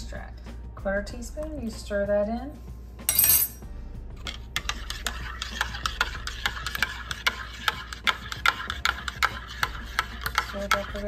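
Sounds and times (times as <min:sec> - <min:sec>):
spoon clinking in ceramic mug: 0:03.1 - 0:03.6.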